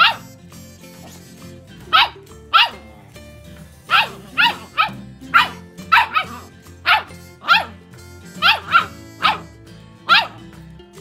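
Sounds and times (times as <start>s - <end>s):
small dog barking: 0.0s - 0.3s, 1.9s - 2.8s, 3.9s - 7.8s, 8.4s - 10.4s
background music: 0.0s - 11.0s.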